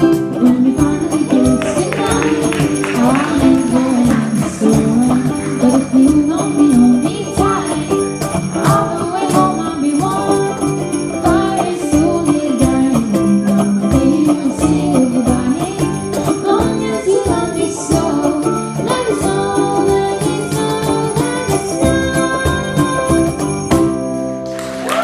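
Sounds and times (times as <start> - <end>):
girl singing: 0.0 - 23.5
cajon beats: 0.0 - 24.2
jingle bells shaken: 0.0 - 24.4
strummed ukulele: 0.0 - 25.0.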